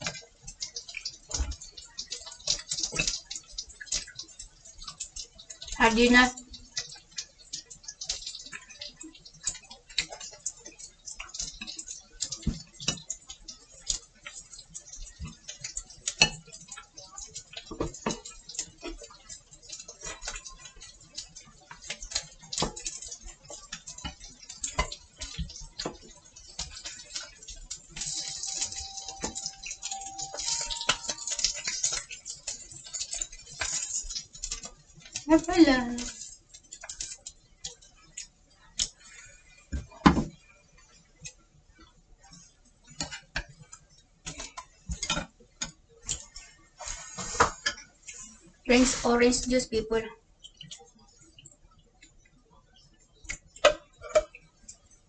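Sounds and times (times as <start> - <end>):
food sizzling in a frying pan: 0.0 - 55.0
faint tune: 28.0 - 31.8.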